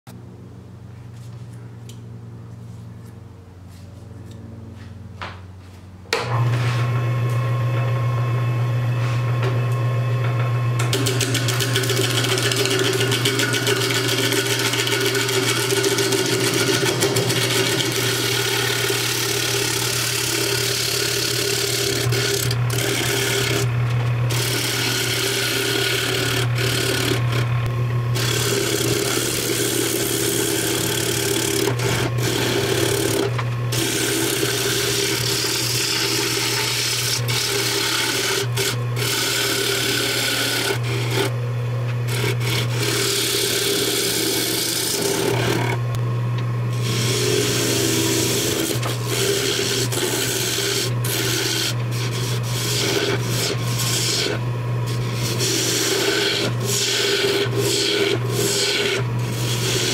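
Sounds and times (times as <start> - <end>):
lathe motor humming: 6.2 - 59.9
turning tool scraping wood: 10.8 - 45.9, 46.7 - 59.9.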